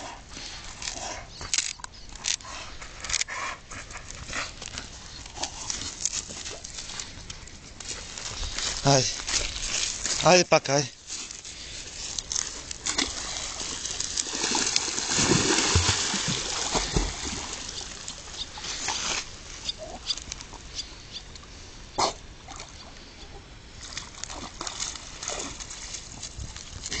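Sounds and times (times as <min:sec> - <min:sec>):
dog splashing in water: 0:12.8 - 0:18.2, 0:23.8 - 0:26.2.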